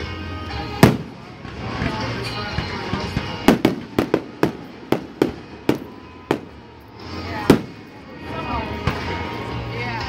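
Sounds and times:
firework shells bursting: 0.8s - 6.7s.

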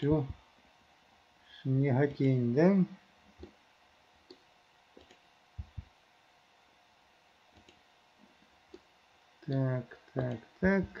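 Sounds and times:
computer mouse clicks: 3.4s - 3.6s, 4.2s - 5.9s, 7.5s - 7.8s, 8.7s - 10.4s.

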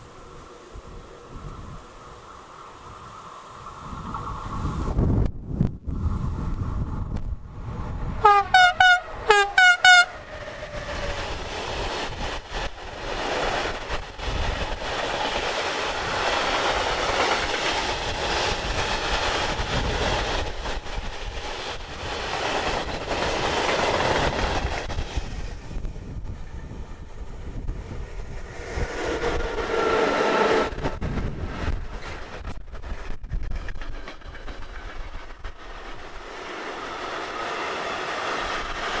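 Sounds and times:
train wheels rumbling on rails: 0.0s - 39.0s
locomotive horn blasts: 8.2s - 10.2s.

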